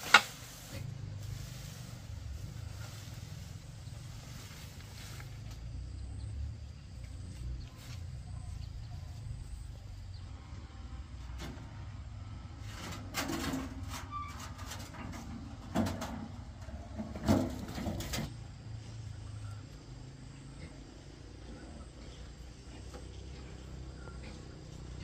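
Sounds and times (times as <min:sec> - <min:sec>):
sharp knocks and scrapes: 0:00.0 - 0:05.5, 0:12.6 - 0:18.4
steady low hum: 0:00.0 - 0:14.0, 0:14.8 - 0:25.0.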